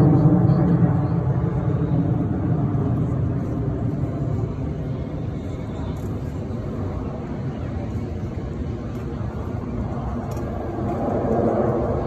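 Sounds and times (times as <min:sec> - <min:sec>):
jets flying past: 0:10.1 - 0:12.0.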